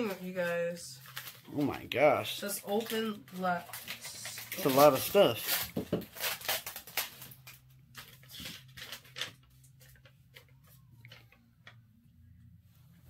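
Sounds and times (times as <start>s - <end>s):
paper rustling and crinkling: 0.0s - 11.4s.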